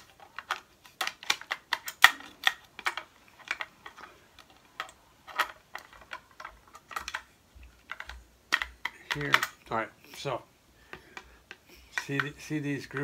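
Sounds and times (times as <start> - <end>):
shotgun clicks and knocks: 4.8 - 9.8.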